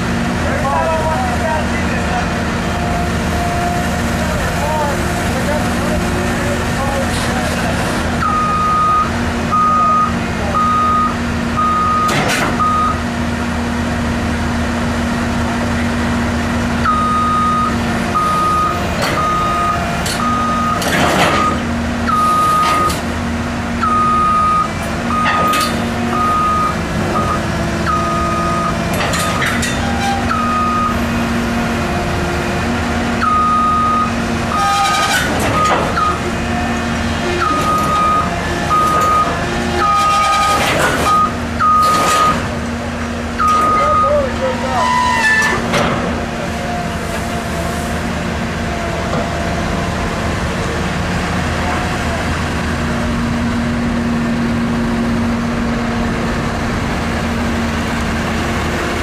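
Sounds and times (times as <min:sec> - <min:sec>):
excavator diesel engine under load: 0:00.0 - 0:59.0
travel alarm beeping: 0:08.2 - 0:13.0, 0:16.8 - 0:20.8, 0:21.4 - 0:23.0, 0:23.8 - 0:28.8, 0:30.3 - 0:31.0, 0:33.2 - 0:35.0, 0:37.4 - 0:42.4, 0:43.4 - 0:44.3
tracks crawling up steel ramp: 0:16.8 - 0:23.0, 0:23.8 - 0:31.2, 0:33.1 - 0:55.3.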